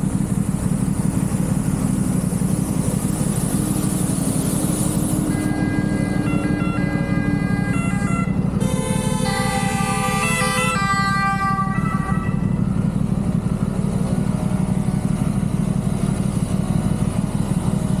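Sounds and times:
motorcycle engine idling: 0.0 - 18.0
two-tone ambulance siren: 5.2 - 12.8.

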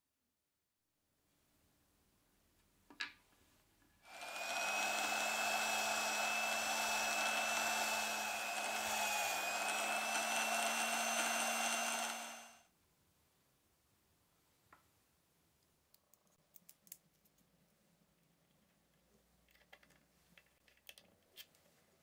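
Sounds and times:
drill press humming and whining: 4.1 - 12.6.

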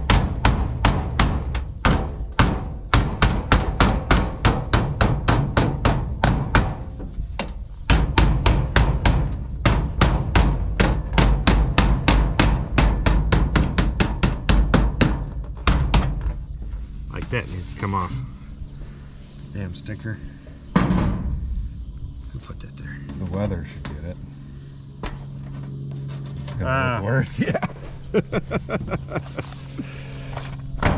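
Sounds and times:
hammer tapping on sheet metal: 0.0 - 6.8, 7.9 - 16.3.

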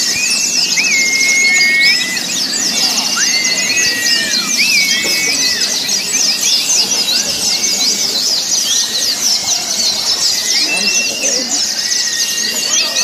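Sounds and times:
low bird whistles: 0.0 - 8.9
birds chirping and trilling: 0.0 - 13.0.

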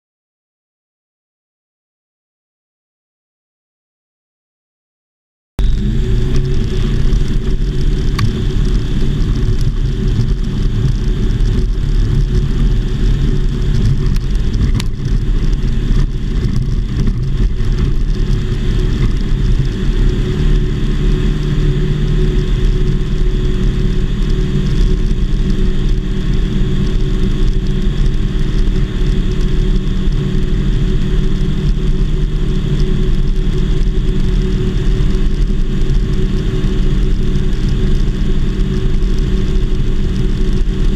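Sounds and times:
light aircraft engine and propeller: 5.6 - 40.9.

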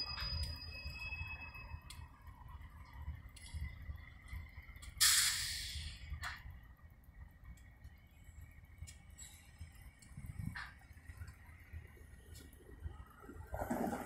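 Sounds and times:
metallic wheel squeal: 0.0 - 2.6
diesel locomotive engine rumble: 0.0 - 14.0
loud hiss: 5.0 - 6.0.

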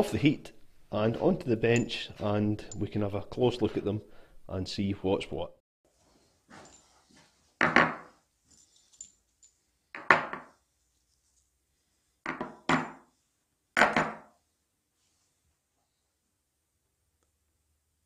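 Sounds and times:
bolts knocking on wooden bench: 10.0 - 10.5.

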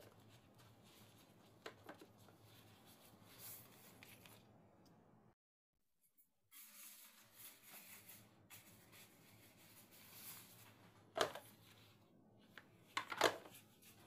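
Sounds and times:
plastic gloves rustling: 0.0 - 4.6, 6.6 - 12.1.

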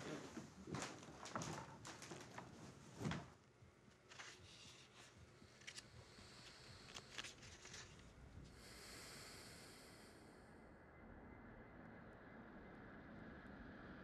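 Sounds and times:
low hiss: 5.6 - 10.5.

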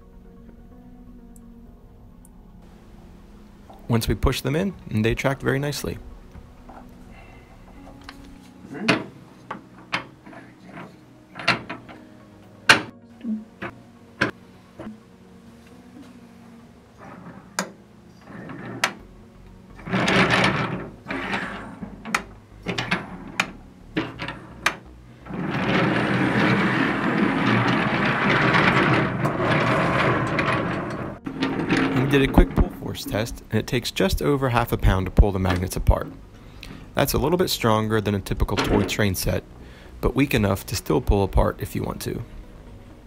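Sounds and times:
toy train rolling on table: 3.7 - 12.1, 17.0 - 19.1, 19.7 - 39.4
wooden toy train cars clicking: 7.6 - 12.1, 19.7 - 39.4.

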